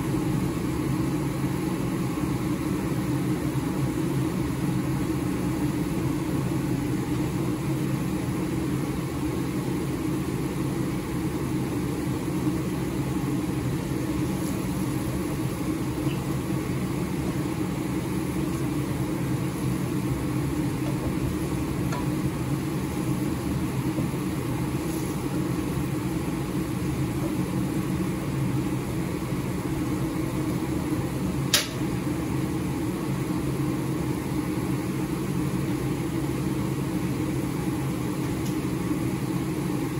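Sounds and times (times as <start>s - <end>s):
chicken boiling in a pan: 0.0s - 39.9s
steady low hum: 0.0s - 39.9s
sharp click: 31.5s - 31.8s.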